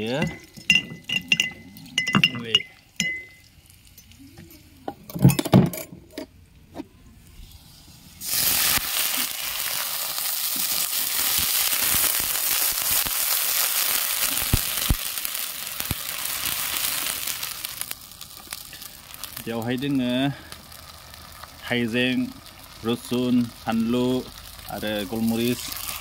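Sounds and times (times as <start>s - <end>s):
metal clinks: 0.2s - 5.9s
onion sizzling in hot oil: 2.8s - 4.4s, 7.4s - 26.0s.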